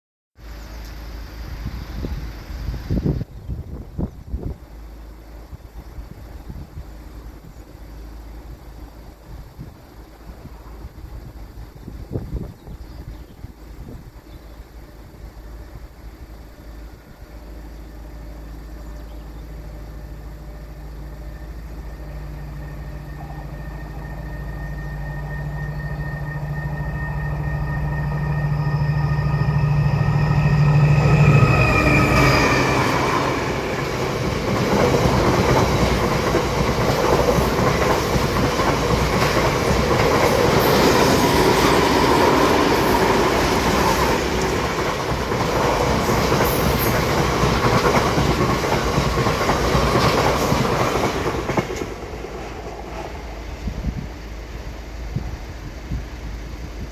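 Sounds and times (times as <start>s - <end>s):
diesel locomotive engine passing: 0.4s - 56.9s
train wheels clickety-clack: 31.1s - 54.1s.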